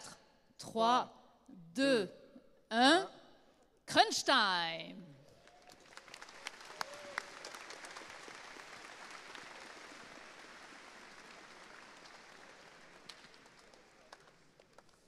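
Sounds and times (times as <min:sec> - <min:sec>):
audience applauding: 0:05.3 - 0:15.0.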